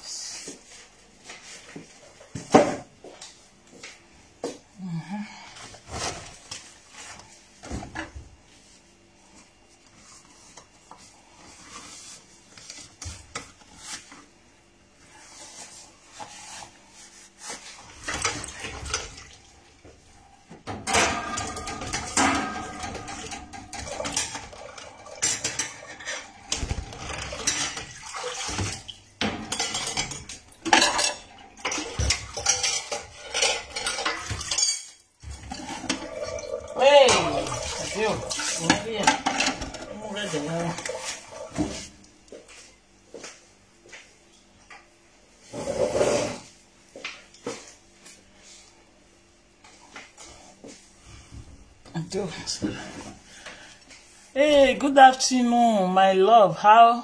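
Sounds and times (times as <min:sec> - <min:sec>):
dishes clattering in a metal sink: 0:17.5 - 0:42.0.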